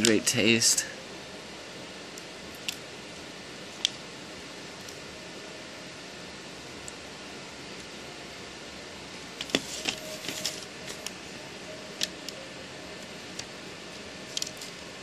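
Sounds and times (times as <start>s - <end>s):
steady hiss: 0.0s - 15.0s
light crackles and clicks: 2.1s - 2.8s, 3.7s - 4.0s, 14.3s - 14.8s.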